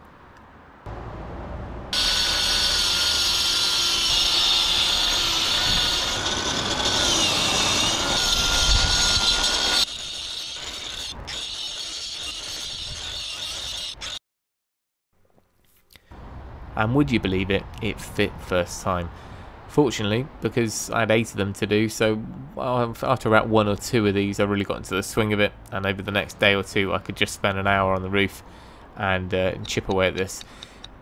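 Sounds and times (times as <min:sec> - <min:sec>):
angle grinder cutting mortar: 0:01.9 - 0:14.2.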